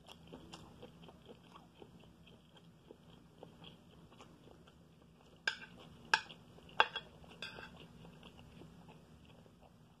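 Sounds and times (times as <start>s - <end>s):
metal spoon clinking on plate: 5.5s - 7.8s
spoon scraping plate: 5.5s - 7.9s.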